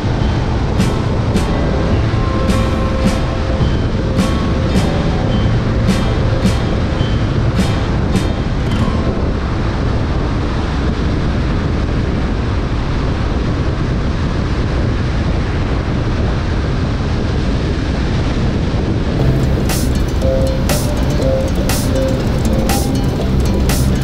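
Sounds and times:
music track: 0.0 - 10.6, 19.2 - 24.0
car road and wind noise: 0.0 - 24.0.

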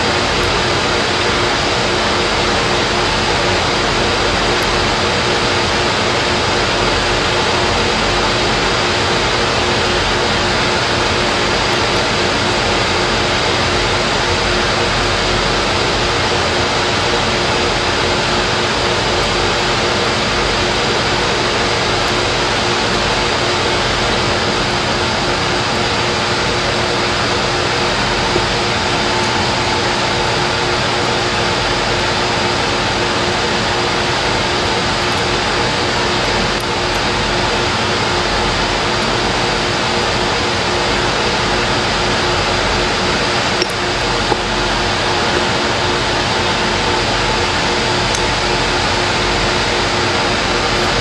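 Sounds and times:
faint steady hum: 0.0 - 51.0
loud steady rushing noise: 0.0 - 51.0.

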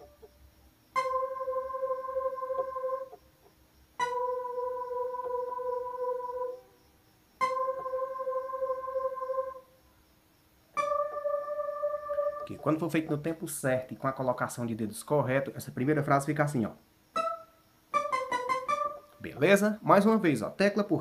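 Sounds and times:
electronic keyboard sustained notes: 0.0 - 0.3, 0.9 - 3.2, 4.0 - 6.7, 7.4 - 9.7, 10.8 - 14.3, 15.7 - 20.4.

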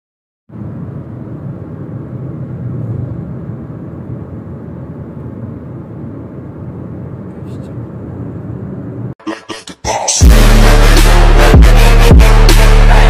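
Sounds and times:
car road and engine rumble: 0.5 - 9.2.

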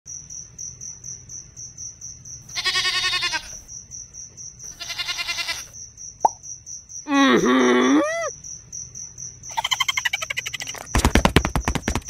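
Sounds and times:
goat bleating: 2.5 - 3.6, 4.7 - 5.7.

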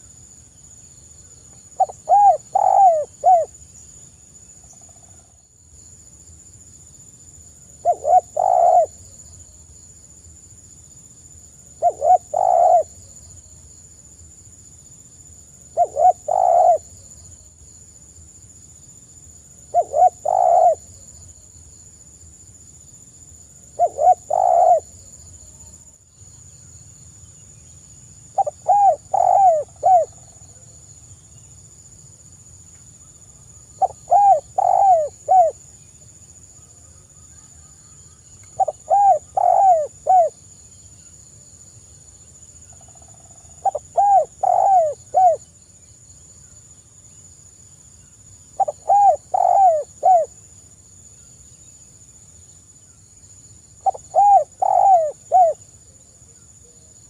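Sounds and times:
dove cooing: 1.8 - 3.5, 7.8 - 9.0, 11.8 - 12.9, 15.8 - 17.0, 19.7 - 20.9, 23.8 - 24.9, 28.4 - 30.2, 33.8 - 35.6, 38.6 - 40.4, 43.6 - 45.4, 48.6 - 50.3, 53.8 - 55.6.

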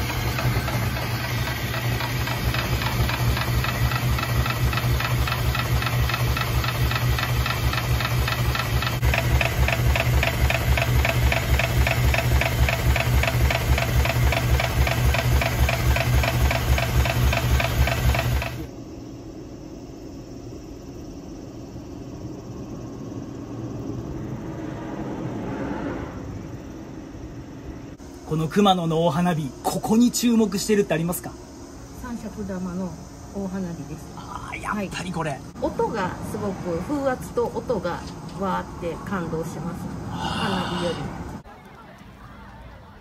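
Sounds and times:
ice shaving machine motor hum: 0.0 - 18.7.

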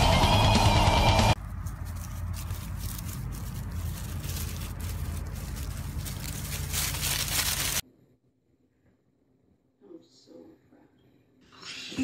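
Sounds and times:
dry leaves crunching: 1.4 - 7.8.

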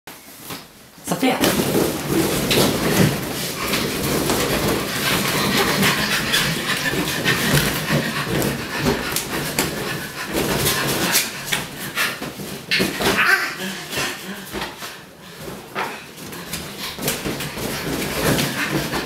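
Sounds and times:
balloons bumping on wooden floor: 1.4 - 13.6.

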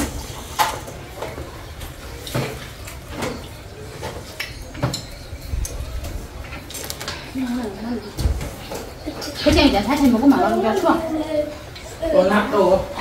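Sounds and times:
chopsticks clinking on dishes: 3.2 - 7.4.

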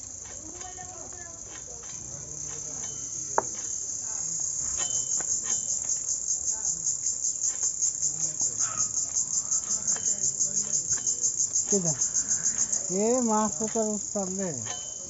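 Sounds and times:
insects chirring: 0.0 - 15.0.

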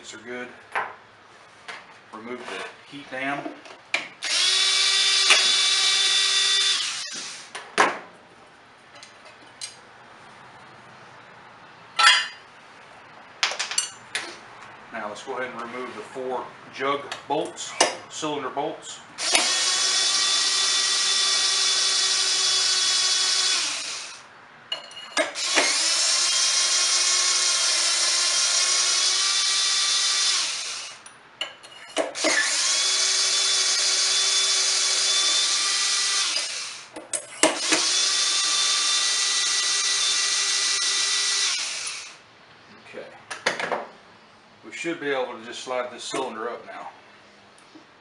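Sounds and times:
cordless drill whining: 4.2 - 7.5, 19.2 - 24.2, 25.4 - 31.0, 32.2 - 36.9, 37.6 - 42.2.

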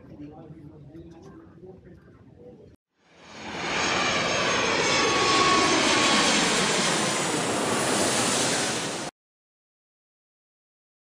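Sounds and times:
jet airliner flying past: 3.0 - 9.1.

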